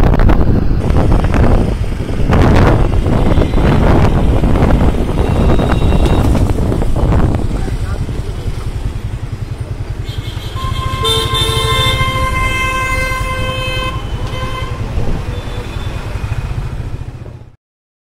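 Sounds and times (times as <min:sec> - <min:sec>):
engine and road rumble: 0:00.0 - 0:17.6
vehicle horn honking: 0:05.2 - 0:06.4, 0:10.0 - 0:16.0.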